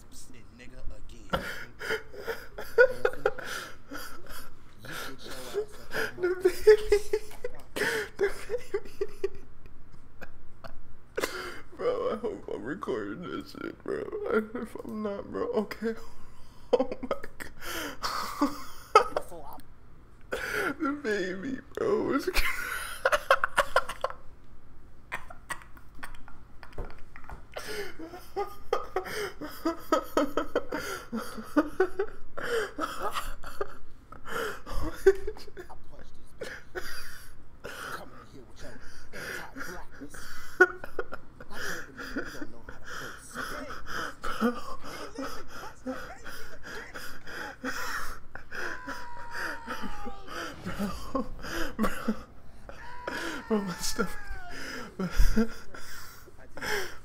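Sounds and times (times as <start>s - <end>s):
man laughing hard: 1.3s - 9.4s, 15.9s - 19.3s, 22.3s - 24.2s, 27.6s - 35.6s, 40.1s - 57.0s.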